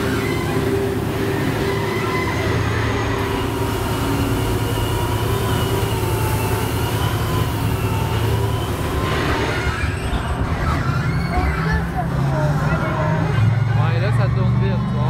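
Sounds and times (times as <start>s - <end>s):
faint wavering whine: 0.0s - 10.6s
ride vehicle rumbling on track: 0.0s - 15.0s.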